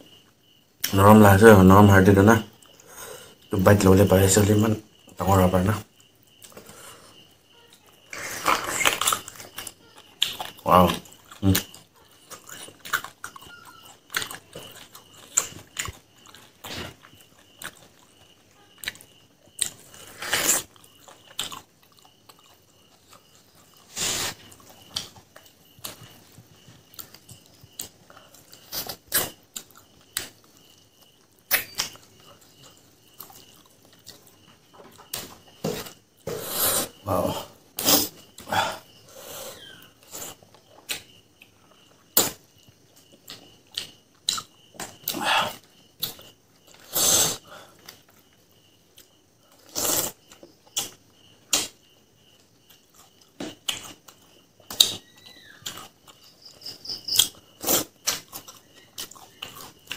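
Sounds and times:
person chewing and smacking: 8.0 - 36.3, 40.0 - 46.9, 47.8 - 59.9.

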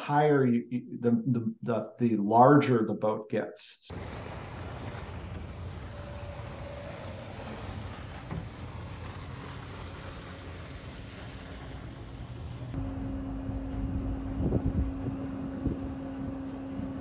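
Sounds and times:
wind and water rushing: 3.9 - 17.0
wind buffeting microphone: 3.9 - 17.0.

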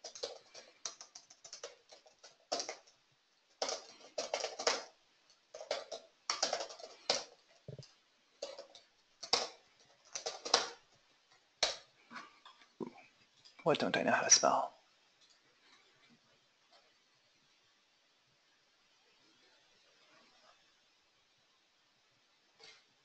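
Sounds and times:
typing on keyboard: 0.0 - 11.9.

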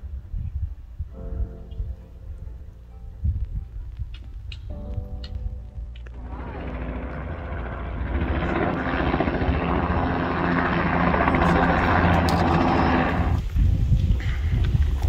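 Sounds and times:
helicopter rotor beating: 6.1 - 13.6.

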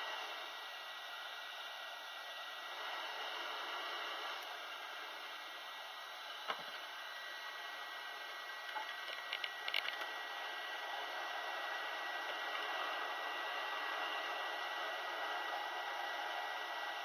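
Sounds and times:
sharp clicks: 8.6 - 10.1
hiss of hot air: 10.2 - 17.0.

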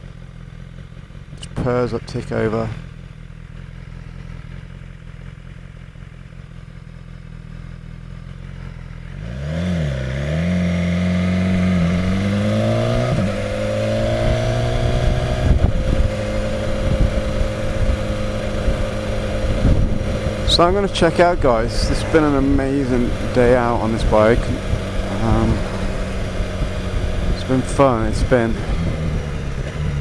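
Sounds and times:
motorcycle engine revving: 0.0 - 30.0
gusty wind noise: 11.9 - 30.0.

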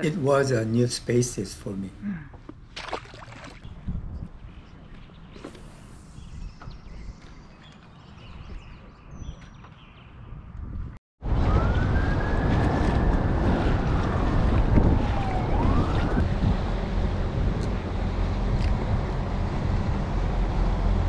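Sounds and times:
water lapping around kayak: 2.4 - 3.7
wind buffeting microphone: 3.6 - 5.2, 6.1 - 20.2
siren wailing: 11.2 - 16.5.

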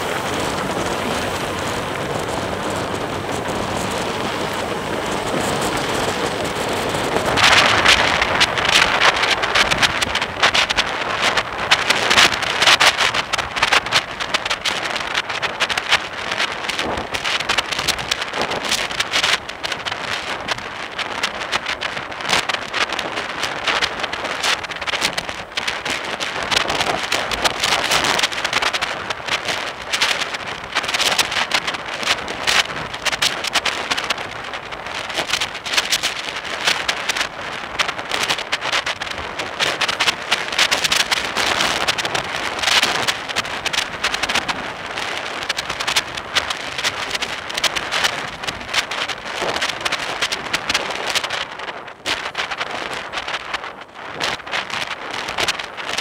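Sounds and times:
road traffic: 0.0 - 17.8
wind buffeting microphone: 0.0 - 56.0.

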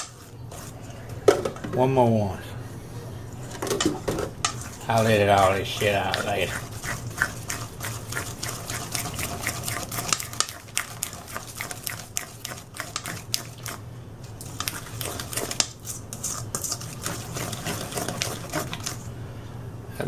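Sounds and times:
spoon scraping metal bowl: 0.0 - 1.0, 4.5 - 13.8, 14.4 - 19.1.

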